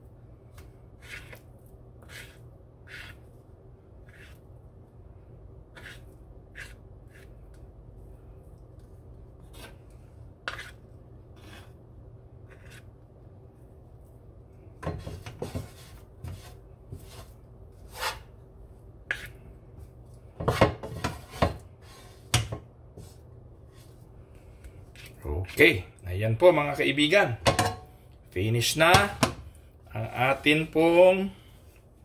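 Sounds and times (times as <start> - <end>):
faint steady hum: 0.0 - 32.0
wooden spatula scraping and knocking: 0.5 - 3.4, 4.0 - 4.5, 5.7 - 7.6, 8.8 - 11.8, 12.4 - 13.0, 14.8 - 18.4, 19.0 - 24.1, 24.9 - 25.8, 28.6 - 31.8.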